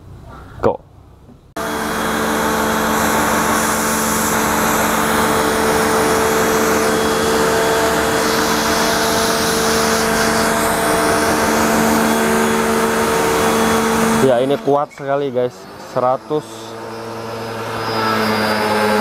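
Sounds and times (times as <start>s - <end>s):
pump motor humming: 1.6s - 19.0s
water jet hissing: 2.2s - 14.8s.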